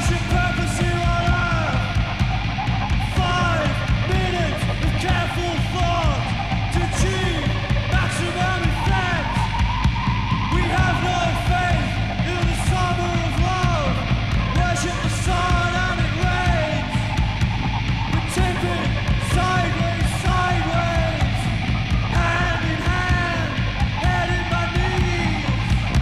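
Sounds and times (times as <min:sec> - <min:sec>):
noise rock band playing: 0:00.0 - 0:26.0.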